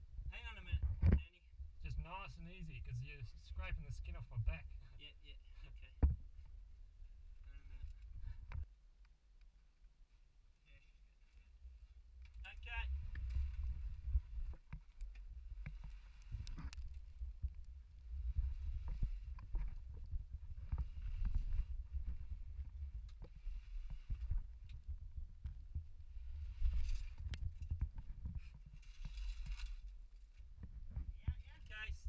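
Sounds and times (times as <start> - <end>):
camera rubbing on clothing and rock: 18.2 - 24.5
knocks and scrapes: 26.3 - 31.1.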